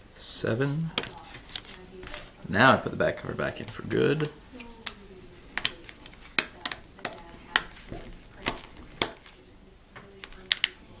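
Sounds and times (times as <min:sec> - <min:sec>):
plastic clips snapping into place: 0:05.6 - 0:09.3, 0:10.2 - 0:10.8.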